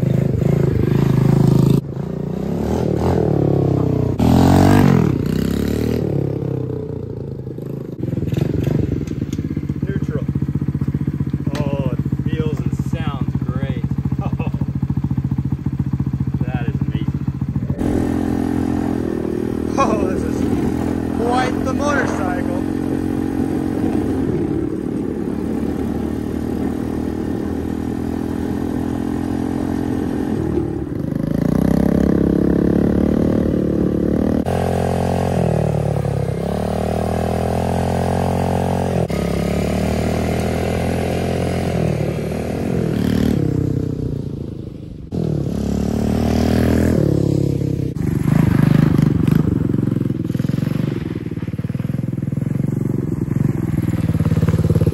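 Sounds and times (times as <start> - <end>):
dirt bike engine revving: 0.0 - 44.5, 45.1 - 54.9
gravel crunching under tyres: 17.2 - 31.8, 48.0 - 54.9.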